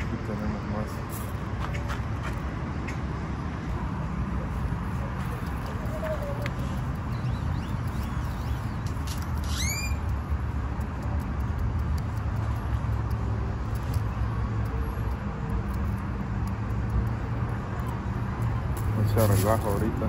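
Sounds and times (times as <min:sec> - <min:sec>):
distant road traffic: 0:00.0 - 0:20.0
bird swooping call: 0:05.7 - 0:06.8, 0:09.4 - 0:10.0.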